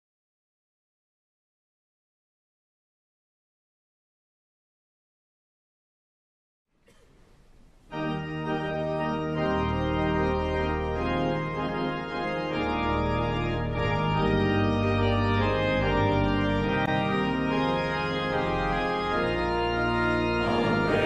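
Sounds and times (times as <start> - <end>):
pipe organ chords: 6.9 - 21.0.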